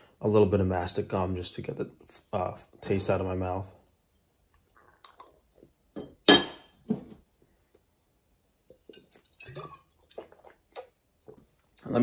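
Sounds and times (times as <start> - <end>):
glass clinking: 6.0 - 6.8, 8.7 - 9.9
drinking from glass bottle: 8.9 - 11.9.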